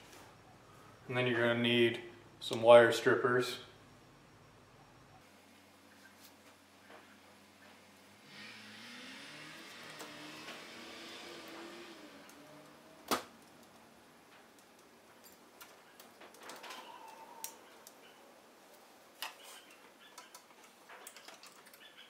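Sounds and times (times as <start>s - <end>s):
wire strippers clicking and snipping: 11.4s - 18.0s, 19.2s - 21.9s.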